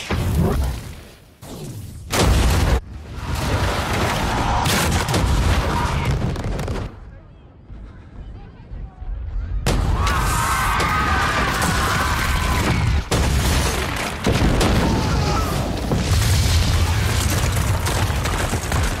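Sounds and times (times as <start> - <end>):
crashing debris: 10.7 - 19.0.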